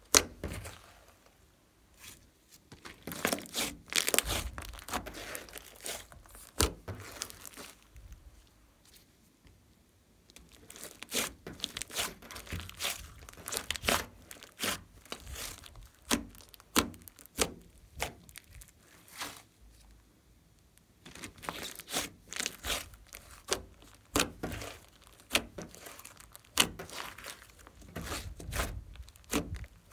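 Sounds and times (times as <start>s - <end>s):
slime squeezed by hand crackling: 2.8s - 8.2s, 10.4s - 19.5s, 21.1s - 29.9s.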